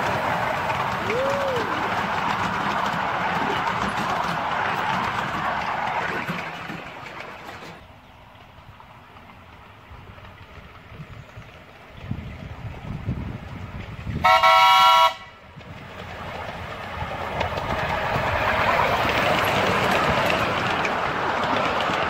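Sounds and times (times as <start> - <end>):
rushing noise: 0.0 - 7.7
locomotive whistle blast: 14.2 - 15.3.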